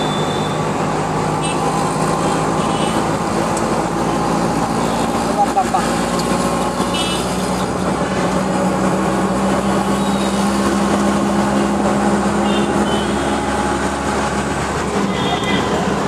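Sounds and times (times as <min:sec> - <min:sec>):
high beeps: 0:00.0 - 0:00.6
auto-rickshaw engine running: 0:00.0 - 0:16.0
road and traffic noise: 0:00.0 - 0:16.0.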